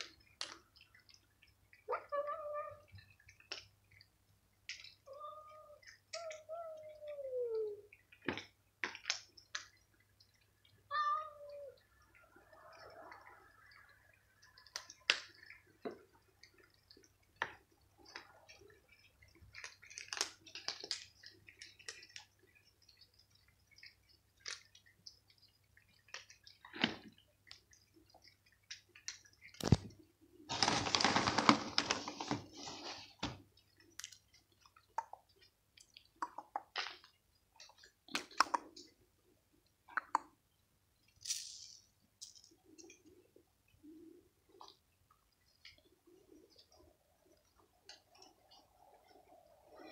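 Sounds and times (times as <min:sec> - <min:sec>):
cats crunching dry kibble: 0:00.0 - 0:06.5, 0:07.9 - 0:39.0, 0:41.1 - 0:43.4
rustling: 0:29.0 - 0:34.2.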